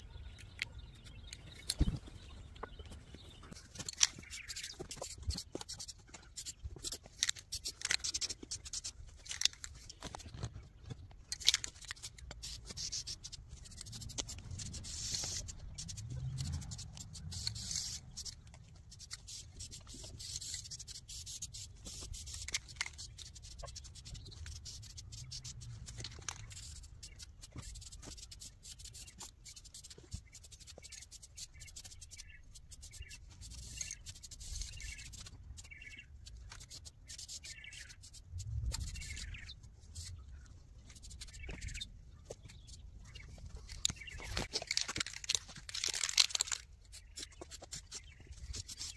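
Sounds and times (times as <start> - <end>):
scratchy rustling: 3.4 - 48.9.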